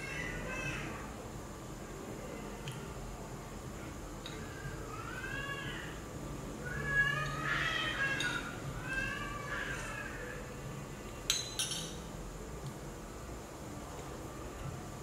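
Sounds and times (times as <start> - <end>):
spoon clinking on glass bowl: 11.3 - 12.0.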